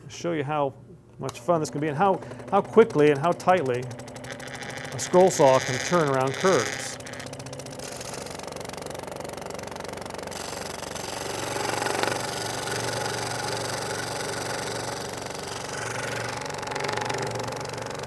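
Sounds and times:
low motor hum: 1.0 - 18.0
scroll saw blade chattering: 1.5 - 8.3.

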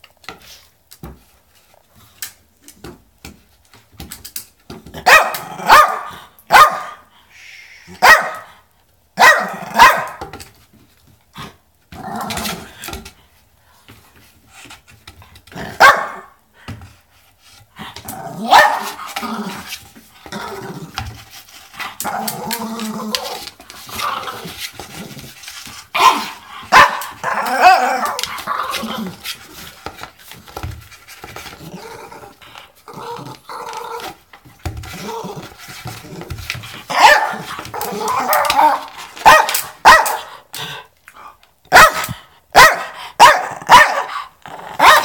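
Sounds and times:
dog barking: 5.0 - 7.0, 8.0 - 8.5, 9.2 - 10.2, 15.8 - 16.3, 18.5 - 18.9, 26.0 - 27.1, 36.9 - 37.4, 39.2 - 40.3, 41.7 - 44.2, 44.8 - 45.0
dog growling: 31.6 - 34.1, 44.4 - 44.9.

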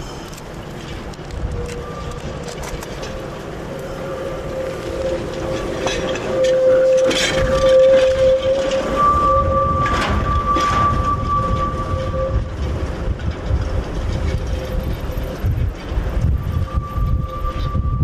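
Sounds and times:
tram wheel rumble: 0.0 - 18.0
wheels squealing on track: 1.4 - 18.0.

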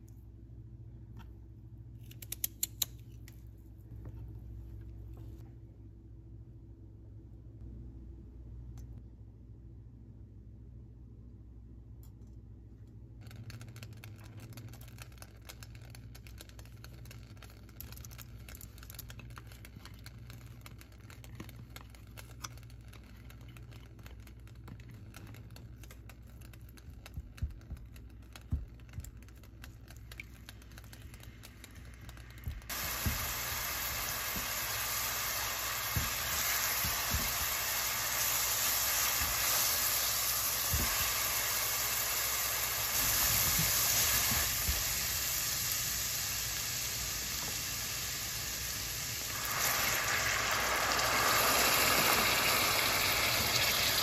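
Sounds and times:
garlic frying in hot oil: 32.2 - 54.0.

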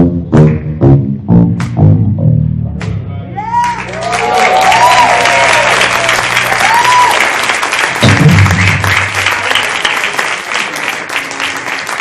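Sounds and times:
low bass note: 0.0 - 3.4, 8.0 - 9.2
audience applauding: 3.5 - 12.0.

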